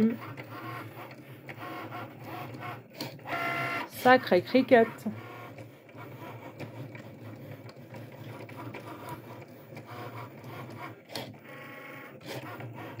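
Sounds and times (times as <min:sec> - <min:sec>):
cutting machine motors whirring: 0:00.0 - 0:13.0.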